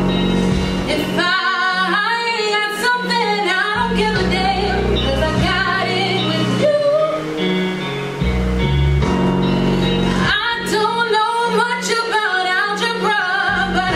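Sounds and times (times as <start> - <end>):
instrumental accompaniment: 0.0 - 13.9
woman singing: 0.9 - 7.5, 10.1 - 13.9.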